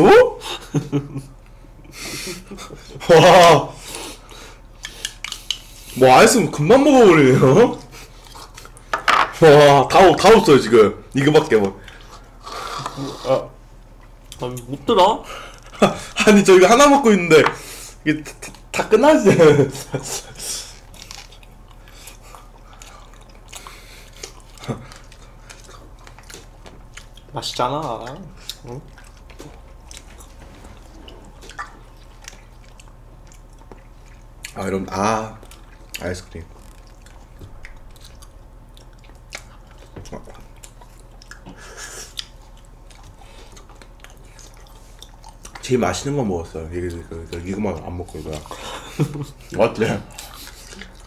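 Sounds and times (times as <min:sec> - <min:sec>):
mouth and chewing sounds: 0:04.1 - 0:06.0, 0:07.7 - 0:08.9, 0:20.2 - 0:46.1, 0:46.7 - 0:51.0.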